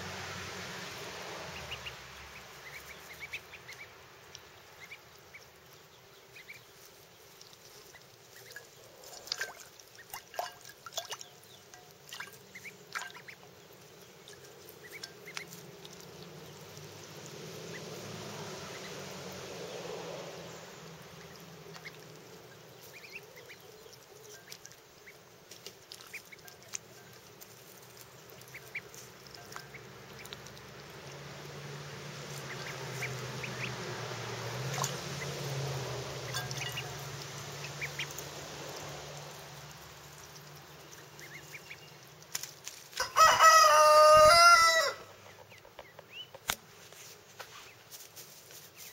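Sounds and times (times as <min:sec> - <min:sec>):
small water splashes: 0:00.0 - 0:43.2
ducklings peeping: 0:00.1 - 0:46.7, 0:48.6 - 0:48.9.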